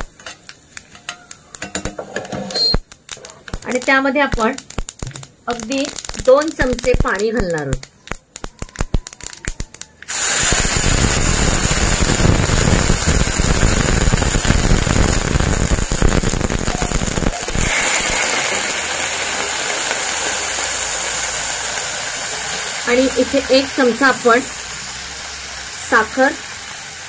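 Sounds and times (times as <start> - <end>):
hot oil crackling in pan: 0.0 - 27.0
loud sizzling: 2.7 - 27.0
water pouring: 17.1 - 23.2.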